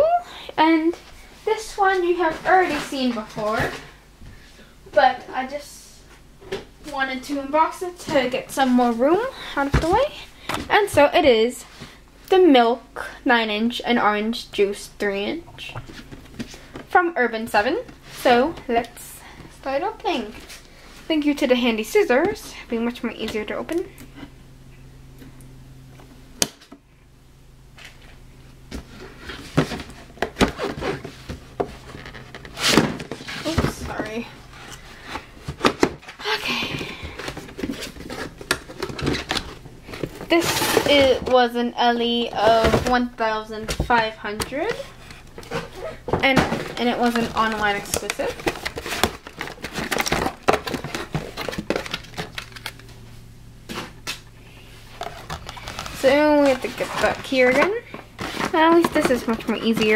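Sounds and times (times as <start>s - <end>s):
cardboard box rustling: 28.9s - 41.4s, 44.6s - 52.8s, 54.8s - 59.9s.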